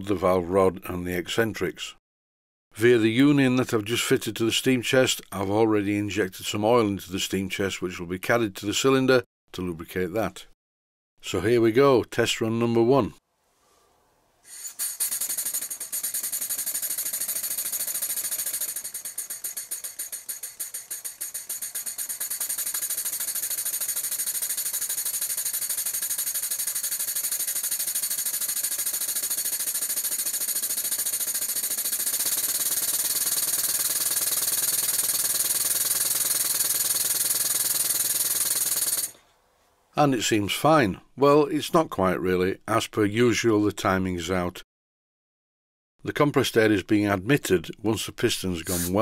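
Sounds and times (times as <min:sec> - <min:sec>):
model steam engine exhaust puffs: 0:14.4 - 0:39.3, 0:48.6 - 0:49.0
steady air hiss: 0:48.7 - 0:49.0.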